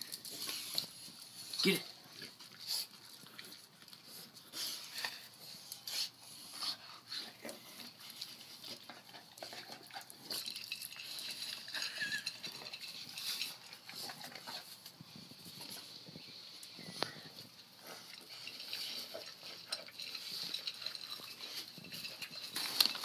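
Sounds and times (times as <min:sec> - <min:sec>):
dogs lapping water: 0:17.6 - 0:23.0.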